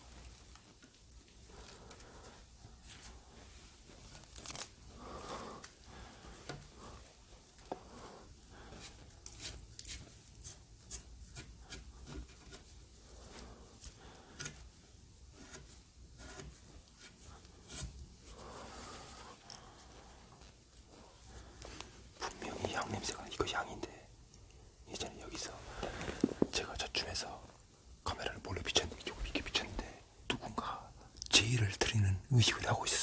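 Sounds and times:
clothing rustling: 0:00.0 - 0:10.9, 0:25.4 - 0:26.6.

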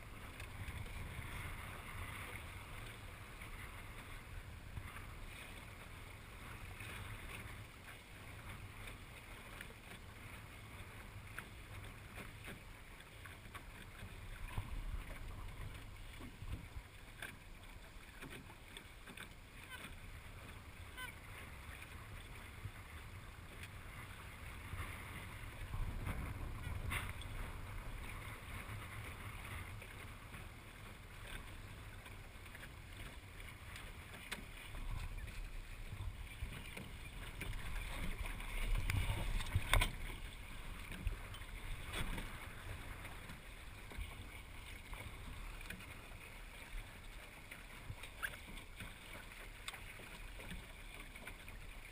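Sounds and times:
water rushing along hull: 0:00.0 - 0:51.9
wind buffeting microphone: 0:24.5 - 0:29.6.

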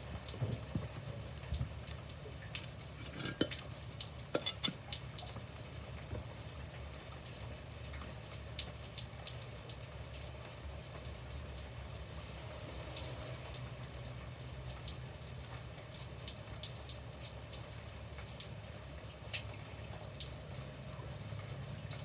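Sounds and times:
rain drips and taps: 0:00.0 - 0:22.0
rain pattering: 0:00.0 - 0:22.0.

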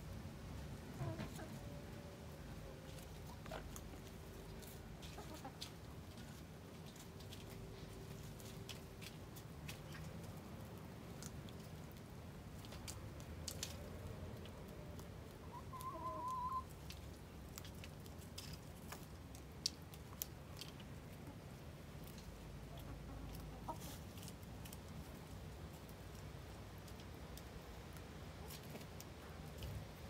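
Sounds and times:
hens clucking softly: 0:00.9 - 0:01.8, 0:02.4 - 0:10.2, 0:13.6 - 0:17.0, 0:20.6 - 0:25.0
hen drawn-out call: 0:15.4 - 0:16.7.

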